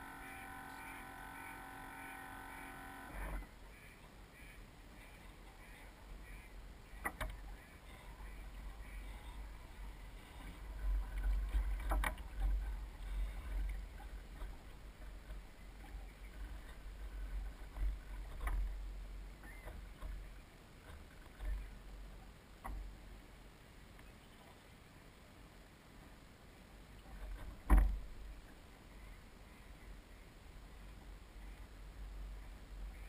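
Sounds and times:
wind and water against hull: 0.0 - 33.0.

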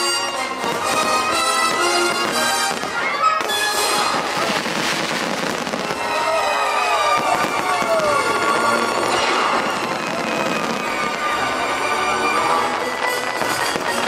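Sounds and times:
fireworks bursting and crackling: 0.0 - 14.0
orchestral music: 0.0 - 14.0
sharp firework bang: 9.0 - 10.7.

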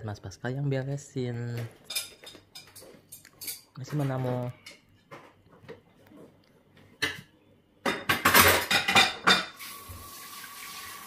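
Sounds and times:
dishes and cutlery clattering: 1.6 - 5.4, 7.0 - 9.6.

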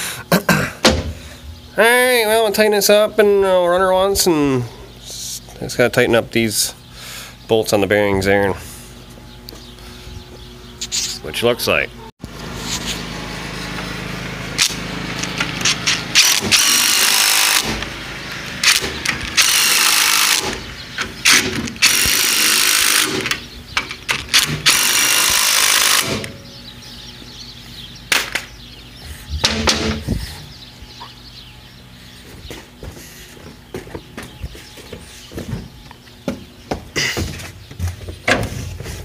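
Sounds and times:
power tool driving bolts: 14.6 - 17.9, 18.6 - 26.4, 29.4 - 30.0.

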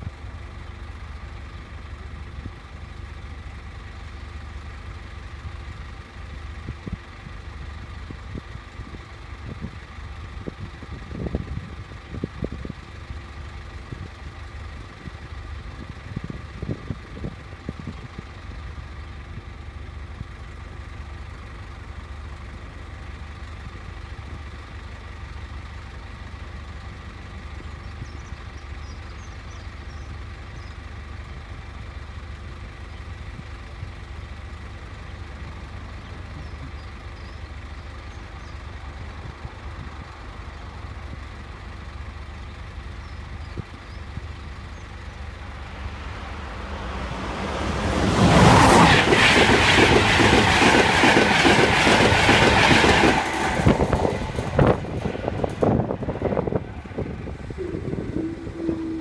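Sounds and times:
approaching electric train: 34.4 - 59.0
steady low rumble: 38.7 - 59.0
faint steady tones: 57.5 - 59.0.

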